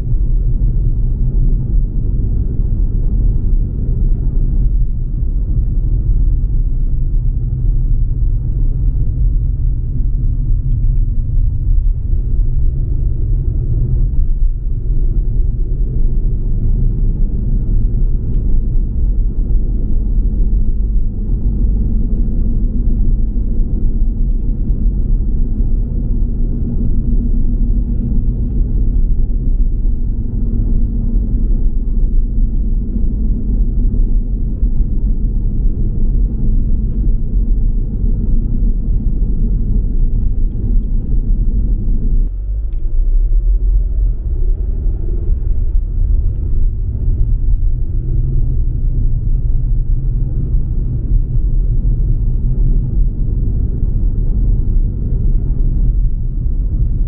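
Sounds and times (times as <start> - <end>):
car driving on road: 0.0 - 57.0.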